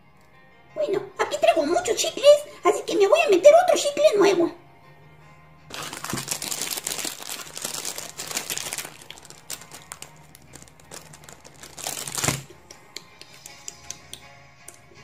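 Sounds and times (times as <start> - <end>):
gum wrapper crinkling: 5.7 - 12.6.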